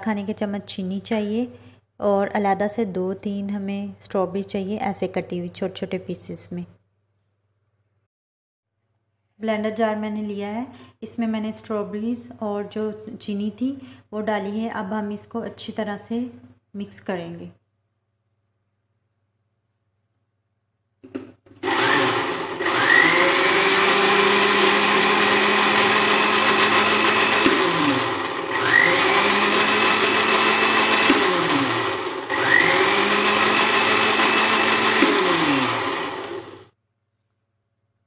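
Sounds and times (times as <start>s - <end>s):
blender motor running: 21.6s - 36.7s.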